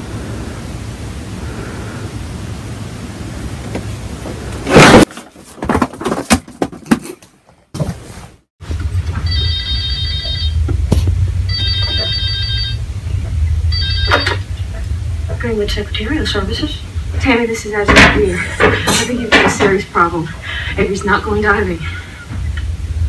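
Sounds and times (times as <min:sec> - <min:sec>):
steady low hum: 0:00.0 - 0:05.1, 0:08.6 - 0:23.0
telephone ringtone: 0:09.2 - 0:10.6, 0:11.5 - 0:12.8, 0:13.7 - 0:14.4
scattered knocks: 0:17.8 - 0:20.0.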